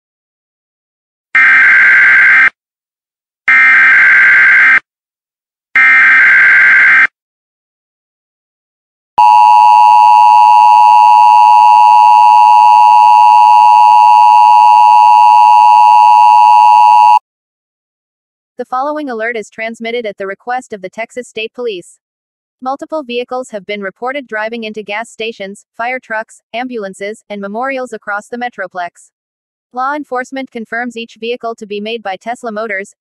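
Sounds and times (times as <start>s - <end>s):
two-tone alarm: 1.4s - 2.5s, 3.5s - 4.8s, 5.8s - 7.1s, 9.2s - 17.2s.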